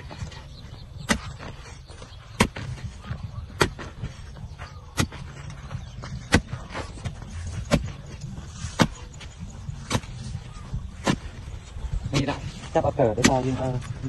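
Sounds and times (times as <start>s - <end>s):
hoe chopping into earth: 6.2s - 8.0s.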